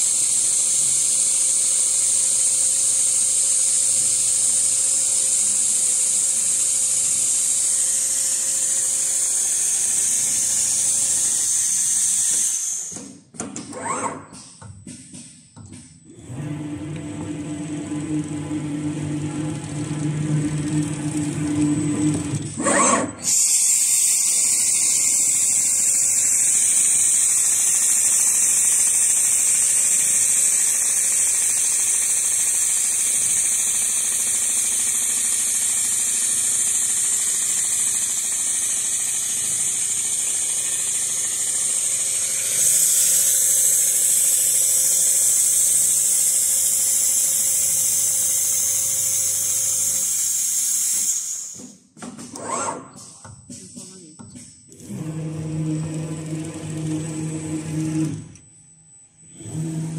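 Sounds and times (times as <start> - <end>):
sewing machine whirring: 0.0 - 14.4, 16.1 - 53.2, 54.7 - 59.9.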